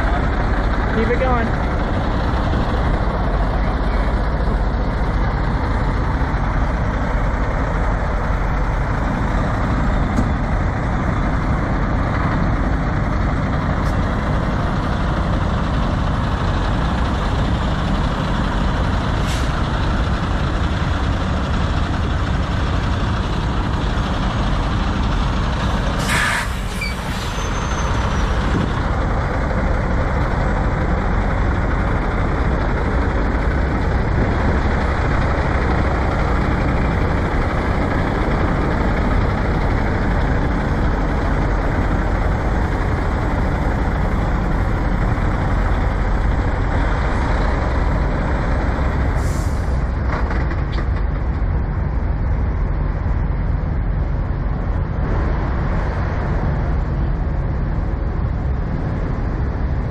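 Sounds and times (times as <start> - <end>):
diesel trucks idling: 0.0 - 59.9
air brake hiss: 19.2 - 19.6, 26.0 - 27.6, 49.2 - 49.8.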